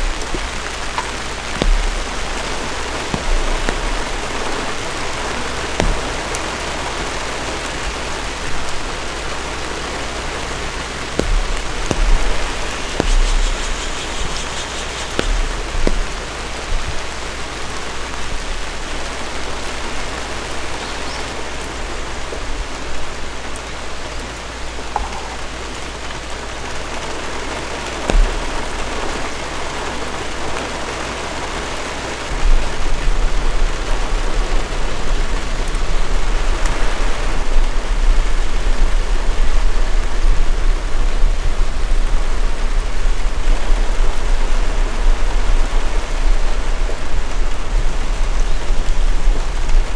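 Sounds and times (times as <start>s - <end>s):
louder drops striking close: 0.0s - 9.5s, 10.2s - 17.8s, 24.9s - 25.9s, 28.1s - 29.6s
steady rain falling: 0.0s - 49.9s
low rumble: 11.1s - 17.6s.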